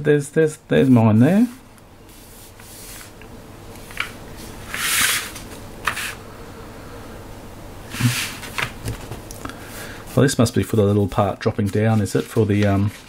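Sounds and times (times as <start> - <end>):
paper booklet rustling: 10.2 - 13.0.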